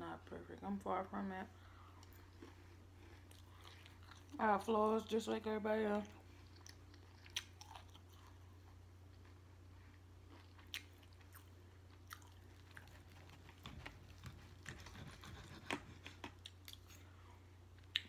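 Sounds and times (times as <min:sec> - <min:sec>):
faint low hum: 0:00.0 - 0:18.0
close chewing: 0:01.8 - 0:04.4, 0:06.3 - 0:17.2.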